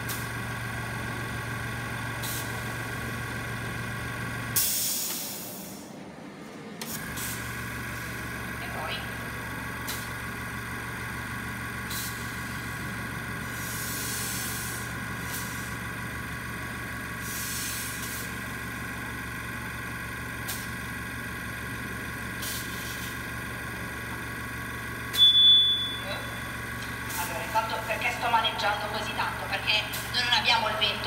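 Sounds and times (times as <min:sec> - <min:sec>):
air compressor running: 0:00.0 - 0:06.0, 0:06.8 - 0:31.0
short air hisses: 0:04.6 - 0:05.9, 0:13.5 - 0:15.6, 0:17.2 - 0:18.3.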